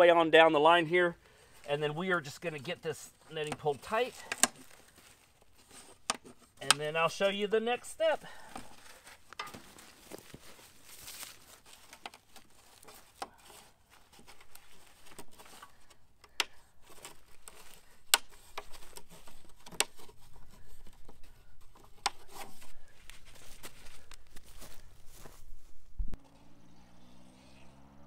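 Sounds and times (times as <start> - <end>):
plastic netting rustling and crinkling: 1.5 - 25.8.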